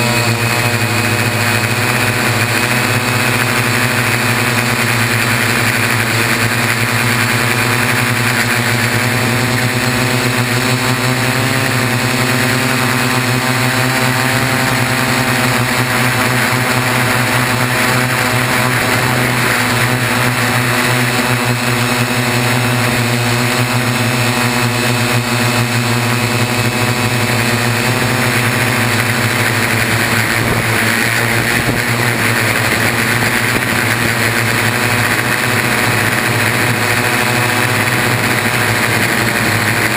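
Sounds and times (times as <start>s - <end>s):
drone propellers whirring: 0.0s - 39.9s.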